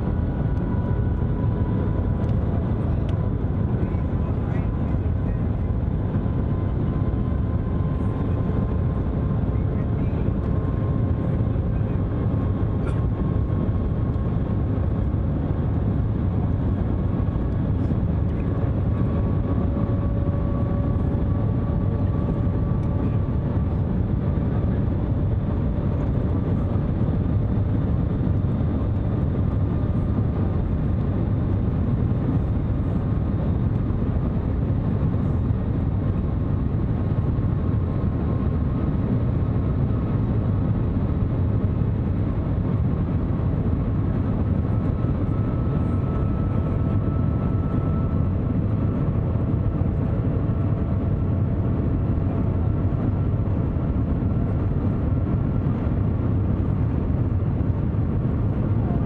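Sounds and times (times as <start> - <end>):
faint whine: 0.0 - 59.0.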